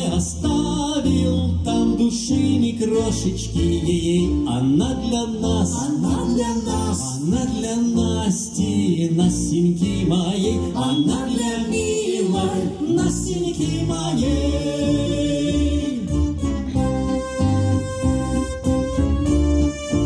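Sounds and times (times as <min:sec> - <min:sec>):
held keyboard chords: 0:00.0 - 0:20.0
live band with electric guitars: 0:15.0 - 0:20.0.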